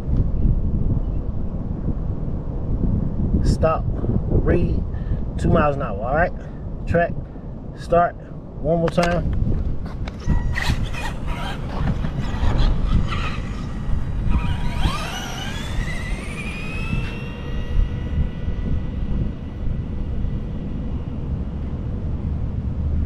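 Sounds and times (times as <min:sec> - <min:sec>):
low rumble: 0:09.3 - 0:23.0
electric motor whining: 0:10.1 - 0:22.3.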